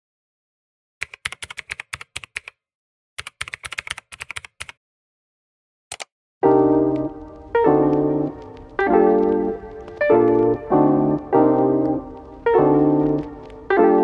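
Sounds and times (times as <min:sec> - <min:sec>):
keyboard typing: 0:01.0 - 0:02.6, 0:03.2 - 0:04.8, 0:05.9 - 0:06.1, 0:06.9 - 0:14.0
piano music: 0:06.4 - 0:14.0.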